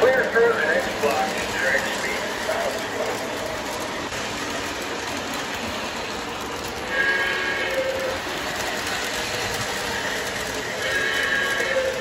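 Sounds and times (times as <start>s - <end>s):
model train wheels rumbling: 0.0s - 12.0s
train whistle blast: 6.9s - 8.2s.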